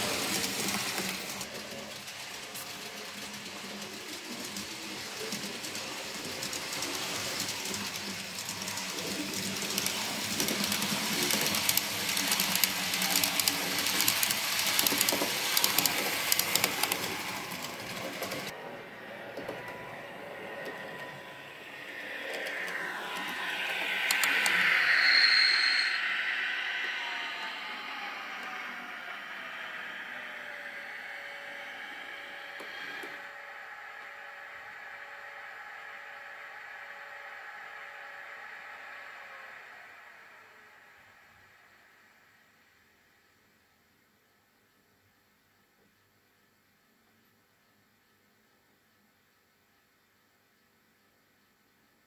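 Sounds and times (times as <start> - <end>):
model train motor hum: 0.0 - 18.5, 20.6 - 24.7, 27.0 - 40.8
model train wheels clattering: 0.0 - 18.5, 22.3 - 24.7.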